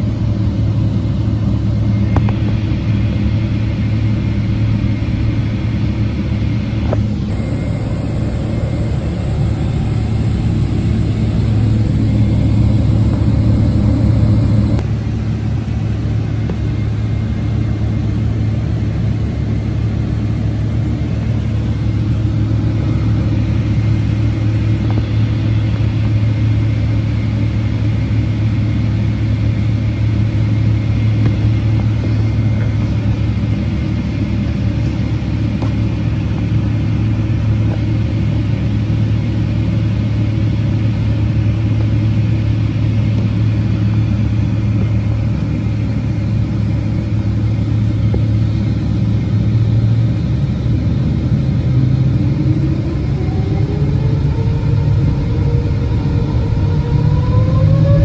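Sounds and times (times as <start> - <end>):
airplane cabin engine rumble: 0.0 - 58.0
faint thin whine: 6.8 - 14.8.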